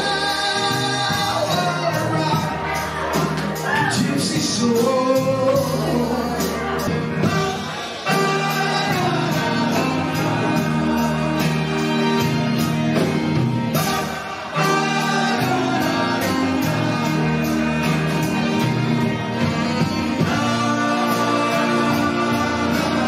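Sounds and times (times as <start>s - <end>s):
male lead vocal: 0.0s - 12.6s, 13.8s - 23.0s
bass guitar: 0.0s - 23.0s
drums: 0.0s - 23.0s
saxophone: 5.5s - 23.0s.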